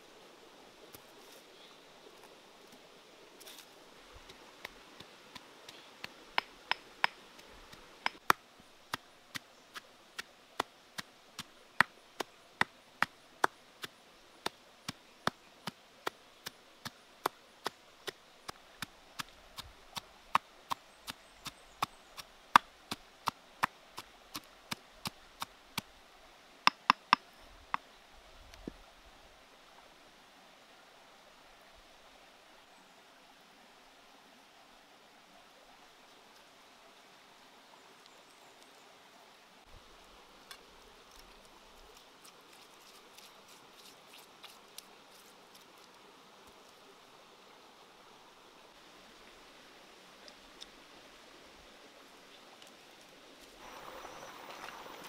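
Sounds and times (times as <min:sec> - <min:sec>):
pestle pounding in stone mortar: 0:26.7 - 0:27.2.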